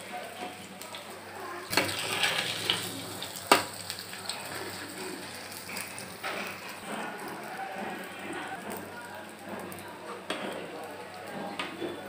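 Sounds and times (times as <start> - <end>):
bread sizzling in hot oil: 0.0 - 10.0.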